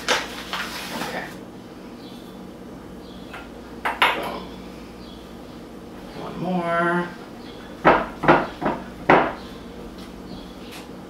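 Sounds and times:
hands mixing dough rustle: 0.0s - 2.4s
steady low hum: 0.0s - 11.0s.

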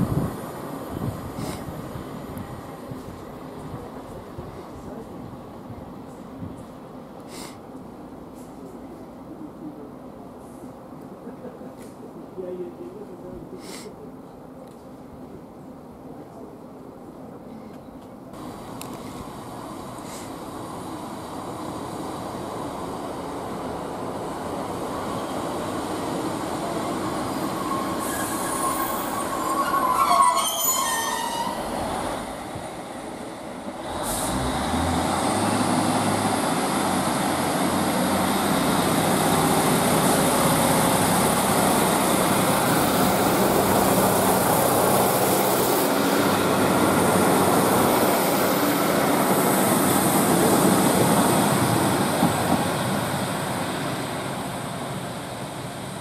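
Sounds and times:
diesel train engines: 0.0s - 56.0s
train brakes squealing: 25.0s - 25.8s, 26.9s - 32.1s.

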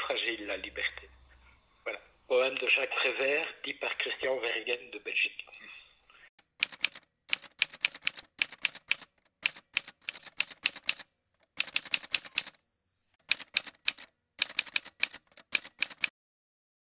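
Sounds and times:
typewriter bell ring: 6.4s - 11.0s, 11.6s - 16.1s
typewriter keys clacking: 6.4s - 12.6s, 13.2s - 16.1s.

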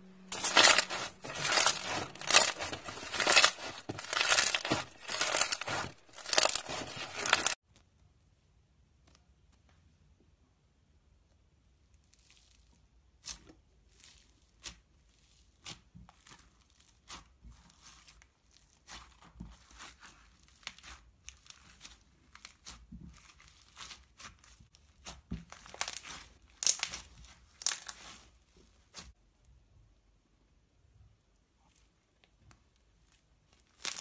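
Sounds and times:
slime crackling and popping: 0.3s - 7.6s, 20.2s - 28.2s, 33.6s - 34.0s.

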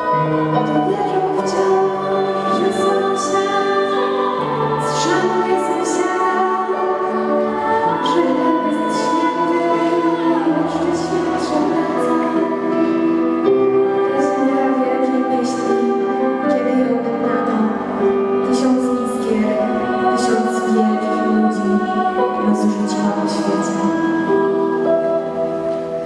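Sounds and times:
vocal ensemble singing: 0.0s - 26.0s.

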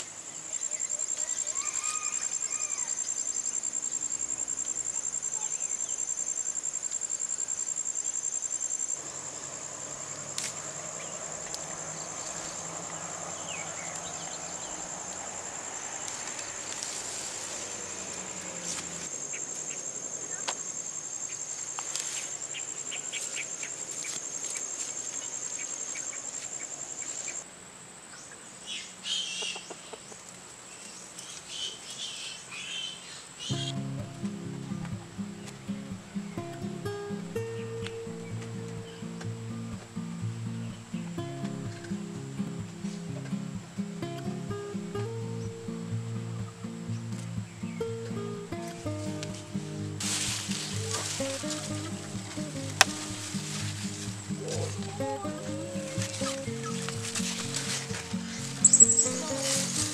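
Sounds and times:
high-pitched insect drone: 53.1s - 59.9s
short chirps: 58.5s - 59.9s.

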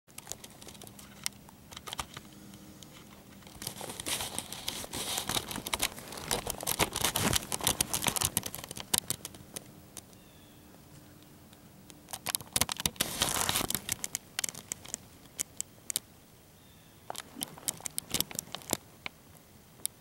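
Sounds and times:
camera handling rustling: 2.9s - 9.4s, 12.1s - 15.6s
sharp clicks: 5.2s - 10.2s, 11.9s - 16.1s, 17.1s - 19.2s.

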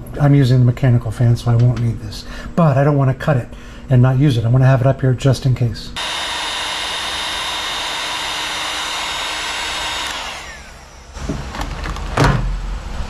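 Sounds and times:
heat gun blowing: 6.0s - 11.4s.

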